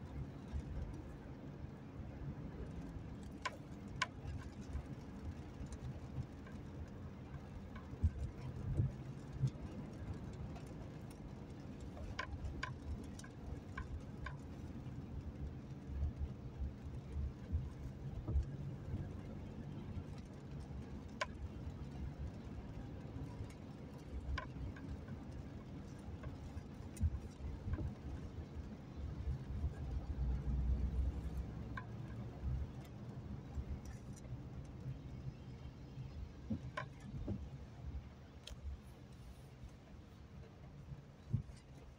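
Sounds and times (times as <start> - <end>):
car cabin road and rain rumble: 0.0 - 41.9
turn signal ticking: 2.4 - 35.4.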